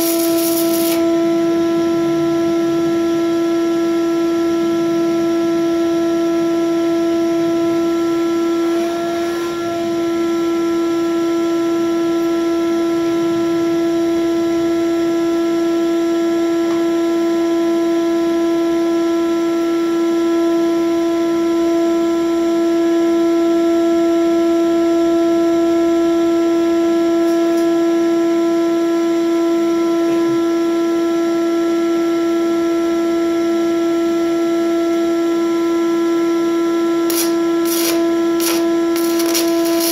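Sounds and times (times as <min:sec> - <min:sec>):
welding arc crackle: 0:00.0 - 0:01.1, 0:37.1 - 0:39.9
shop vacuum motor whine: 0:00.0 - 0:23.2, 0:24.6 - 0:39.9.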